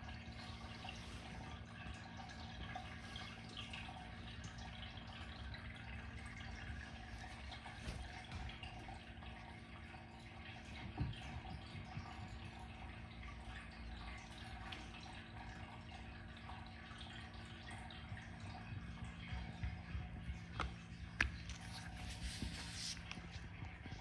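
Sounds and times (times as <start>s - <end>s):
room hum: 0.0s - 24.0s.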